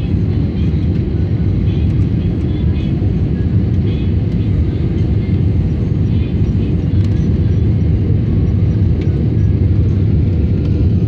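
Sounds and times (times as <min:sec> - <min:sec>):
jet engines roaring in cabin: 0:00.0 - 0:11.0.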